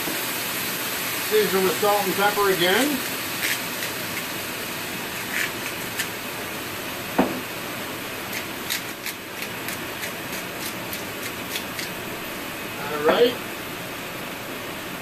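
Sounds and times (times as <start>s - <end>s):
pan hissing: 0.0s - 14.8s
single knock: 7.2s - 7.4s
spice grinder ticking: 8.3s - 12.0s.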